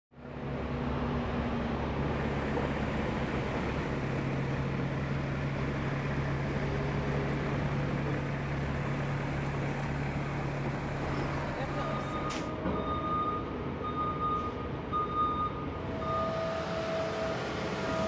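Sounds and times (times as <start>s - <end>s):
truck engine running: 0.2s - 12.5s.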